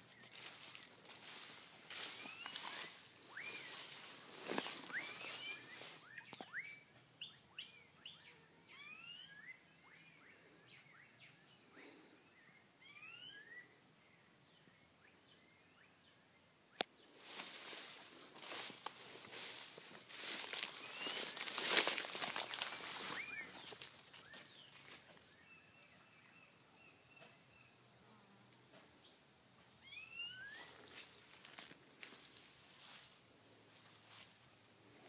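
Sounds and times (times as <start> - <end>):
footsteps through grass: 0.0 - 6.4, 17.1 - 25.2, 30.4 - 34.6
birds chirping: 0.0 - 9.0, 17.0 - 28.0.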